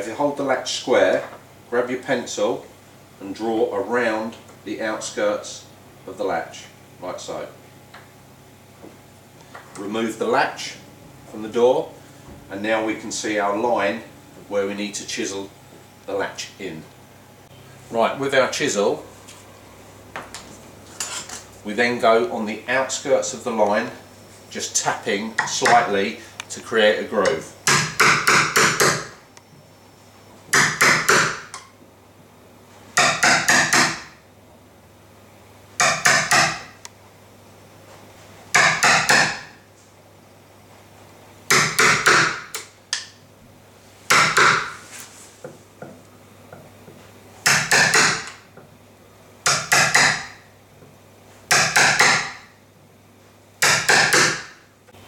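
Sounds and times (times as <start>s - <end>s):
hammer tapping chisel into wood: 27.2s - 29.1s, 33.0s - 34.1s, 35.8s - 36.7s, 38.5s - 39.4s, 44.1s - 44.7s, 47.4s - 48.7s, 49.4s - 50.4s, 51.5s - 52.4s, 53.6s - 54.5s.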